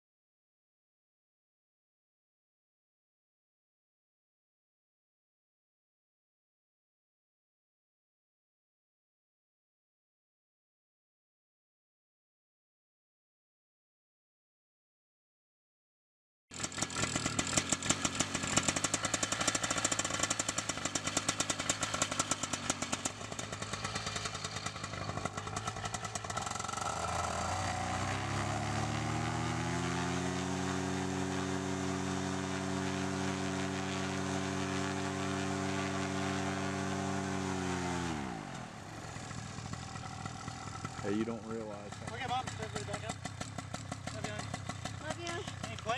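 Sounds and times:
paramotor engine and propeller: 16.5s - 45.9s.

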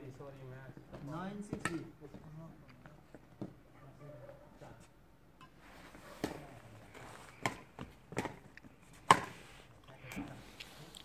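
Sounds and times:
rackets hitting shuttlecock: 1.5s - 1.9s, 7.4s - 9.3s.

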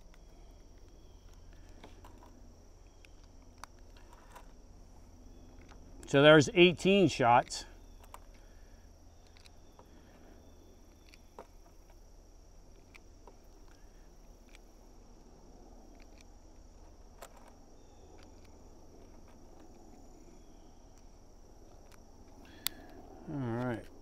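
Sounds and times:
insects chirring: 0.0s - 24.0s
faint clicks: 20.9s - 24.0s.

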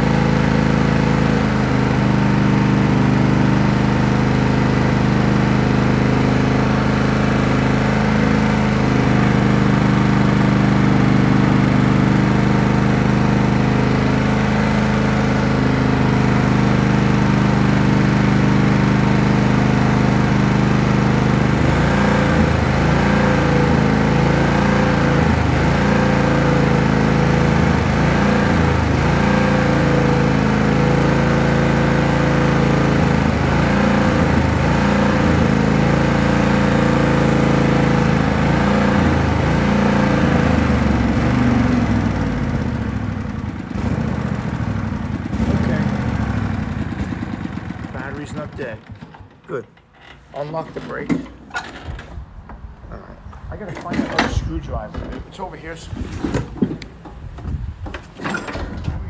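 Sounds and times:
lawn tractor engine running: 0.0s - 59.0s.

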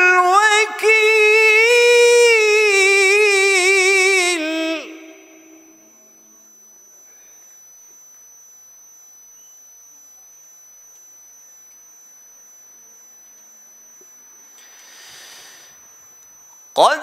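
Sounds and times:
faint high-pitched tone: 0.2s - 17.0s
person breathing in: 14.6s - 15.8s.

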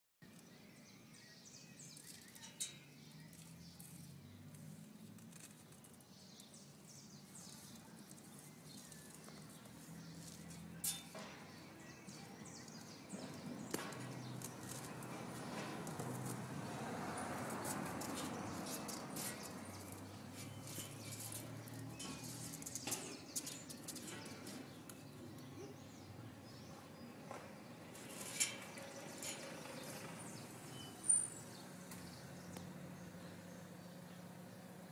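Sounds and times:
birds chirping: 0.2s - 34.9s.

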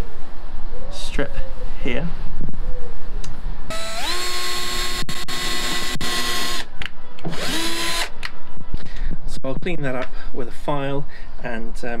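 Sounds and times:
cordless drill whining: 3.7s - 6.7s, 7.3s - 8.1s.

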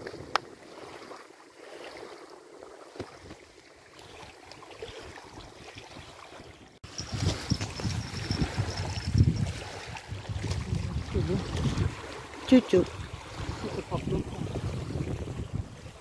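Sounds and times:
small waves lapping: 0.0s - 16.0s
wind: 0.0s - 16.0s
wind gusts buffeting microphone: 6.8s - 16.0s.

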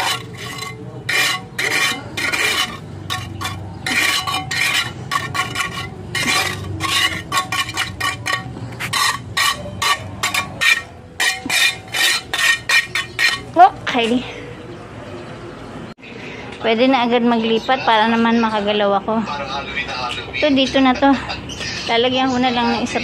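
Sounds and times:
trowel scraping wet cement: 0.0s - 13.6s.

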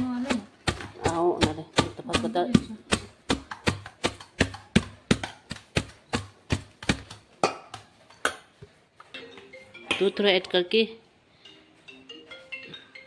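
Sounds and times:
metal pestle pounding in bowl: 0.0s - 7.9s.

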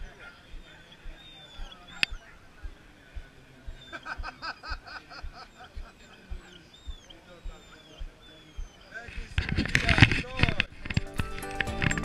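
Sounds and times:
soft low thumps: 0.0s - 9.4s
faint background voices: 0.0s - 10.9s.

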